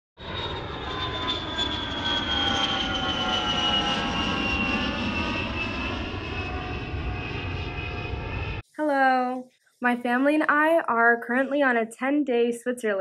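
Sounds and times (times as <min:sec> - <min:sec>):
airplane flying past: 0:00.2 - 0:08.6.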